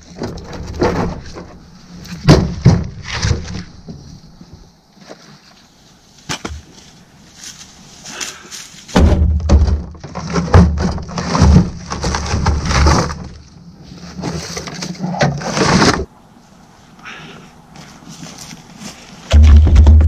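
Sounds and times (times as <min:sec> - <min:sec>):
logs thudding on metal: 0:00.0 - 0:04.0, 0:08.9 - 0:13.4, 0:19.3 - 0:20.0.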